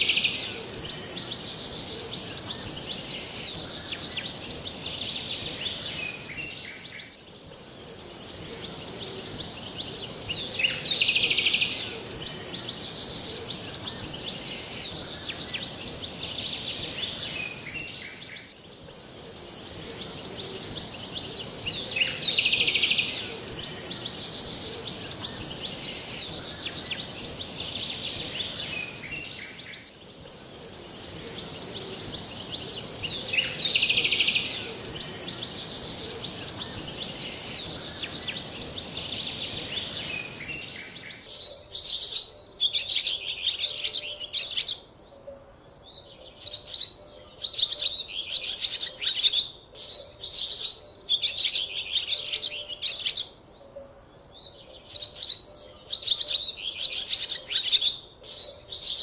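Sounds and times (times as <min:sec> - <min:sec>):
steady high hiss: 0:00.0 - 0:41.4
birds chirping: 0:00.0 - 0:42.3.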